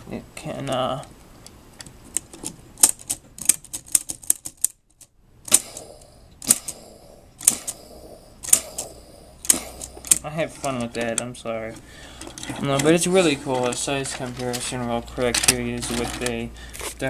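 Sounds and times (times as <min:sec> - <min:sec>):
hard plastic toy clicking: 0:02.1 - 0:06.8, 0:07.4 - 0:07.8, 0:08.4 - 0:11.3, 0:12.2 - 0:16.4.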